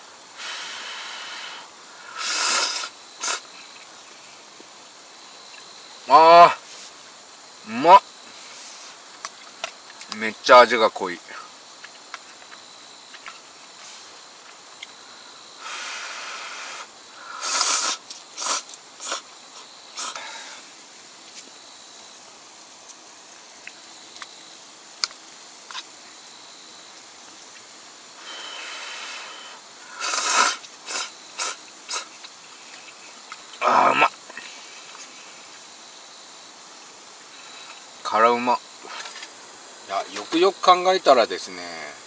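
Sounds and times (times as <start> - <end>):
person slurping noodles: 2.2 - 3.4, 17.4 - 19.2, 29.9 - 32.1.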